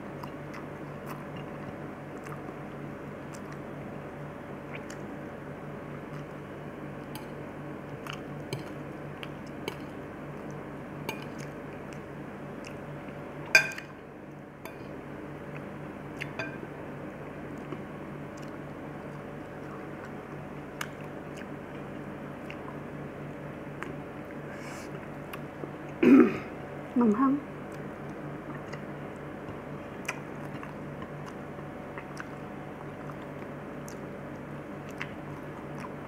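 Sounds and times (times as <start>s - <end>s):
soft chewing: 0.0s - 16.6s, 17.2s - 26.0s, 27.6s - 36.0s
steady low hum: 0.0s - 36.0s.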